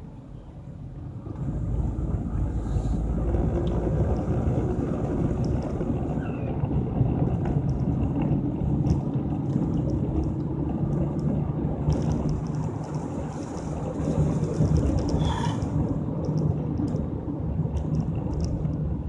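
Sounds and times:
car engine and tyre rumble: 0.0s - 19.0s
faint ticks: 17.7s - 18.8s.

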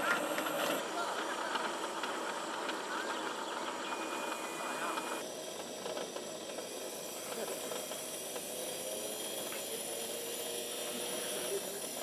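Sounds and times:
model helicopter turbine hiss and whine: 0.0s - 12.0s.

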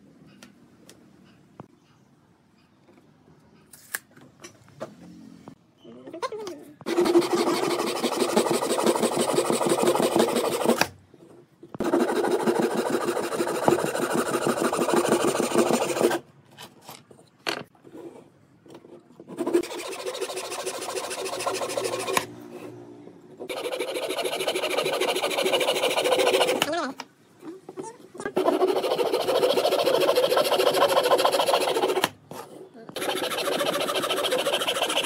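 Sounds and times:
handsaw cutting wood: 6.9s - 10.8s, 11.8s - 16.2s, 19.4s - 22.3s, 23.5s - 26.7s, 28.3s - 32.1s, 33.0s - 35.0s.

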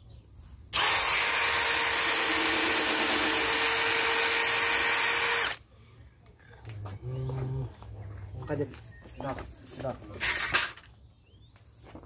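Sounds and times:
cordless drill boring into wood: 0.8s - 5.6s.

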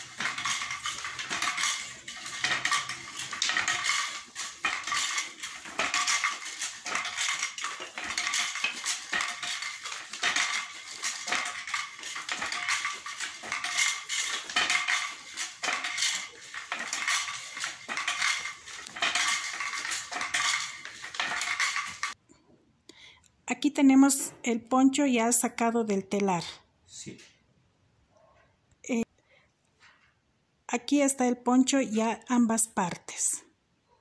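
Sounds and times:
wooden loom clattering: 0.0s - 22.2s.

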